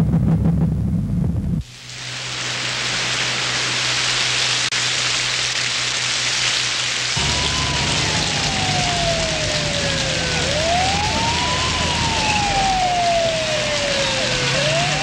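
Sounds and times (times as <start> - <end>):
low rumble: 0.0 - 1.6
heavy rain hissing: 1.6 - 15.0
siren with falling pitch: 7.2 - 15.0.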